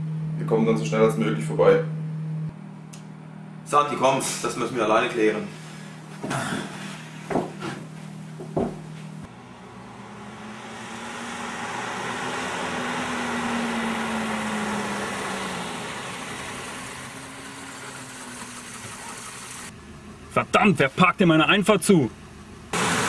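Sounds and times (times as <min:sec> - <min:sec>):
car engine drone: 0:00.0 - 0:23.0
tyre noise on road: 0:06.2 - 0:20.2.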